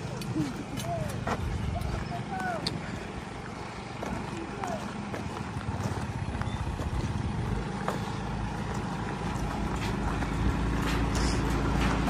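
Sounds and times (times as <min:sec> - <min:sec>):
diesel engine idling: 0:00.0 - 0:12.0.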